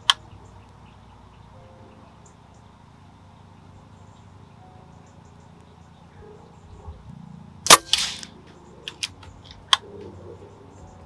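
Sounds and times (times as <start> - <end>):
air rifle shot: 7.6 - 9.2.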